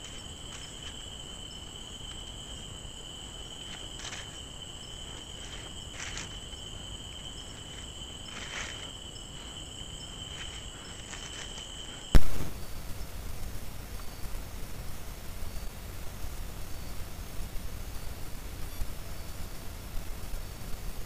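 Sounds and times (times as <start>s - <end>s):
rustles in leaf litter: 0.0s - 20.6s
insects trilling: 0.0s - 21.0s
sharp loud knock: 12.2s - 12.6s.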